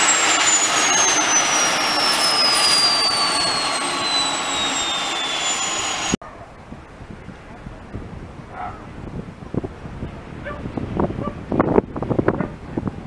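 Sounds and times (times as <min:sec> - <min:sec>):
helicopter turbine whine winding down: 0:00.0 - 0:06.2.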